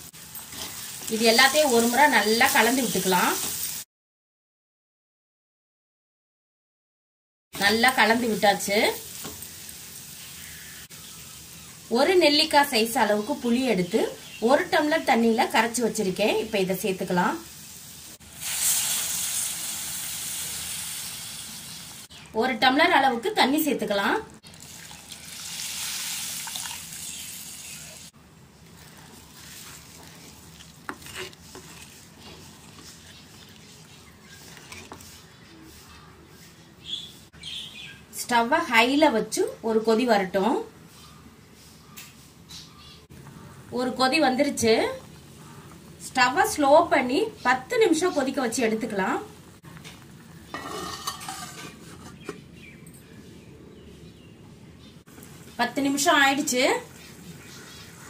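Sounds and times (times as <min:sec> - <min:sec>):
gravy sizzling and bubbling: 0:00.0 - 0:03.9, 0:07.6 - 0:36.5, 0:43.1 - 0:52.5, 0:55.0 - 0:58.0
curry bubbling in a pot: 0:24.4 - 0:35.4
spatula stirring gravy: 0:28.4 - 0:36.4
metal lid clattering: 0:50.5 - 0:52.4.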